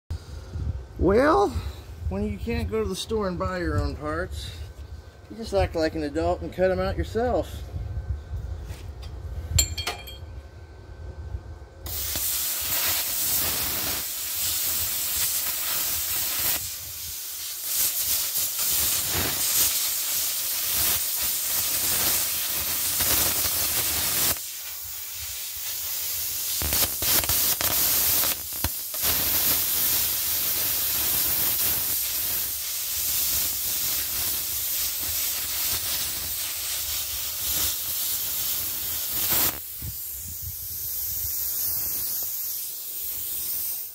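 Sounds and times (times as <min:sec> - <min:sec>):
plasma cutter hissing: 0:11.9 - 0:43.9.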